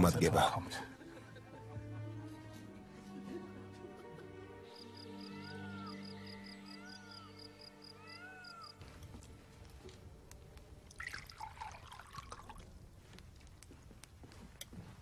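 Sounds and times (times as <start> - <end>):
music: 0.0 - 10.8
wavering animal call: 5.2 - 8.8.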